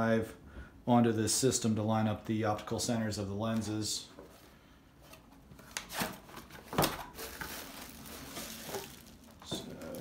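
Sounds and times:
plastic wrapping rustling: 5.6s - 10.0s.

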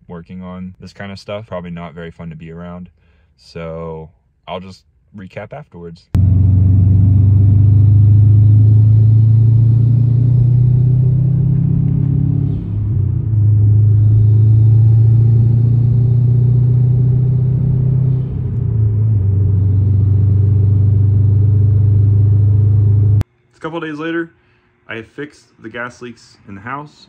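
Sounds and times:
car engine and exhaust droning: 6.2s - 23.2s.

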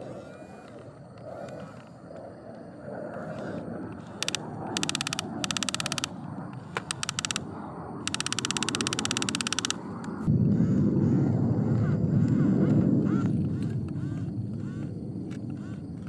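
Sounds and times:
toy gear motors whirring: 0.0s - 2.0s, 3.1s - 10.8s, 12.2s - 15.9s
low rumbling noise: 0.0s - 16.0s
clicks: 3.2s - 10.2s.

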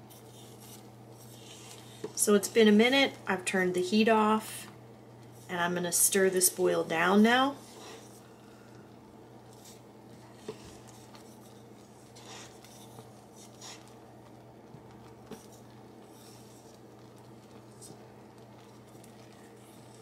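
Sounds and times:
faint steady hum: 0.0s - 20.0s
wooden spoon stirring jam: 5.1s - 20.0s.

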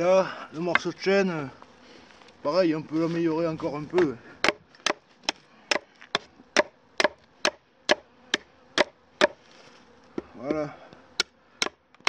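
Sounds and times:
knife chopping wood: 0.7s - 0.9s, 4.0s - 9.4s, 11.2s - 12.0s.

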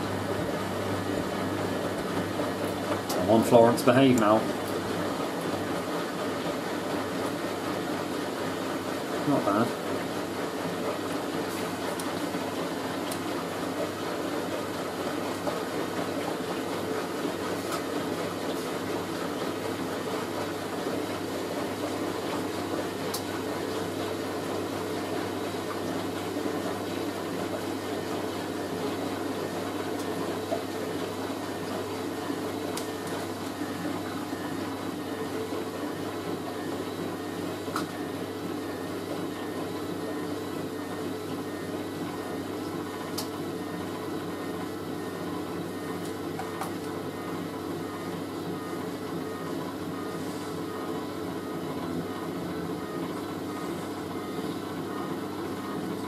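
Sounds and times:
washing machine spinning: 0.0s - 56.0s.

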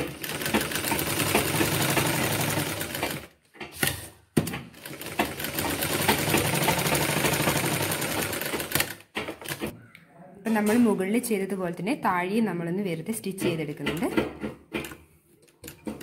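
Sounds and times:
sewing machine stitching: 0.0s - 9.7s.

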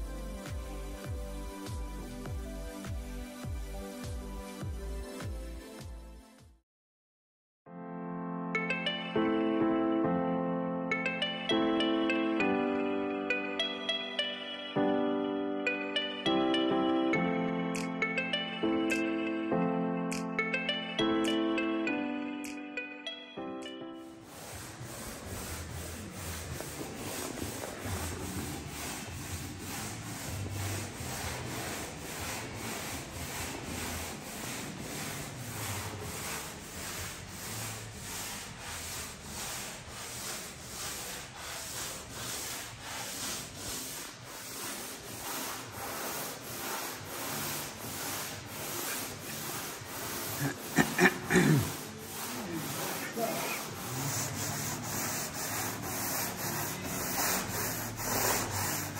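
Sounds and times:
hand sanding strokes: 24.0s - 58.9s.

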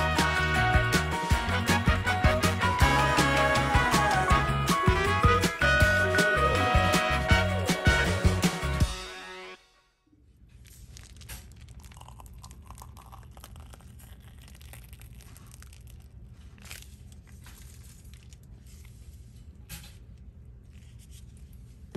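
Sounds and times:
plastic piping bag crinkling: 10.6s - 19.1s.

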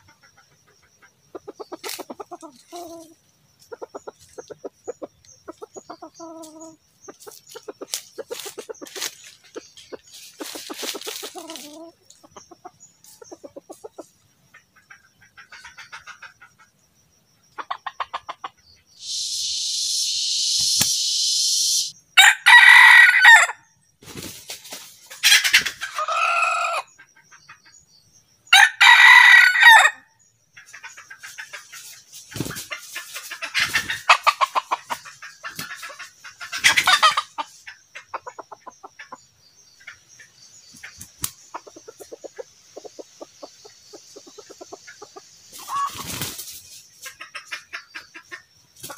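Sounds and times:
chicken clucking: 0.0s - 16.8s, 17.5s - 21.9s, 24.1s - 27.8s, 30.6s - 48.9s
loud steady hiss: 19.0s - 22.0s
rooster crowing: 21.7s - 23.6s, 28.6s - 30.0s.

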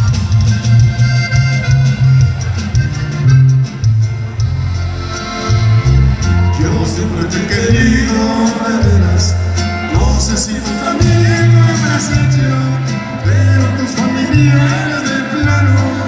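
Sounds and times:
button accordion melody: 0.0s - 16.0s
drums: 0.0s - 16.0s
heavy bass line: 0.0s - 16.0s
man singing: 6.5s - 16.0s.

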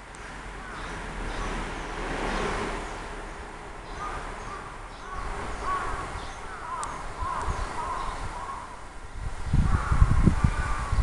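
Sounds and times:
crows calling: 0.2s - 1.6s, 3.9s - 8.9s, 9.5s - 11.0s.

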